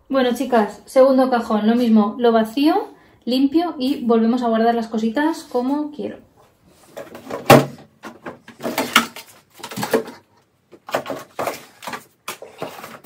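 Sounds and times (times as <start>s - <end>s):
items clattering in drawer: 6.9s - 13.0s
packaging rustling: 8.5s - 13.0s.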